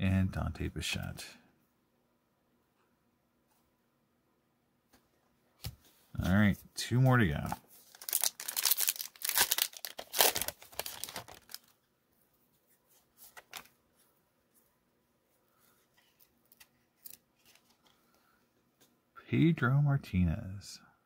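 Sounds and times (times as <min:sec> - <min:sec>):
cards clicking and rustling: 0:07.0 - 0:11.7, 0:13.2 - 0:13.8
wrapper tearing and crinkling: 0:07.9 - 0:11.8.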